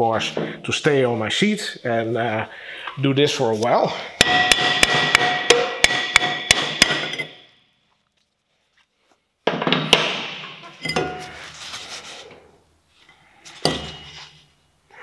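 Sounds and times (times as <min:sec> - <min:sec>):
hammer striking brake drum: 0:04.2 - 0:07.4
sharp metal knock: 0:04.2 - 0:07.4.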